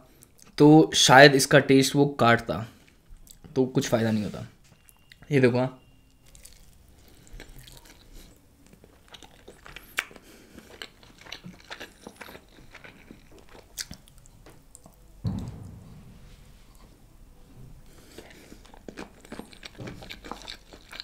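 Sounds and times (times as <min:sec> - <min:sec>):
person chewing chicken: 0:06.2 - 0:15.0, 0:17.8 - 0:21.0
mouth clicks and crackles: 0:07.4 - 0:15.0.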